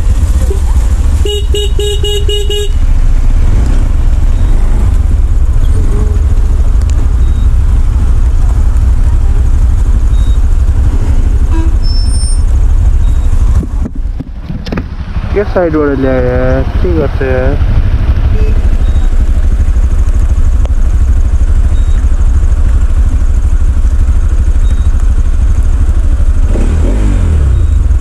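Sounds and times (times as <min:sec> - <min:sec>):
low rumble of traffic: 0:00.0 - 0:28.0
vehicle horn short toots: 0:01.2 - 0:02.8, 0:11.4 - 0:12.4.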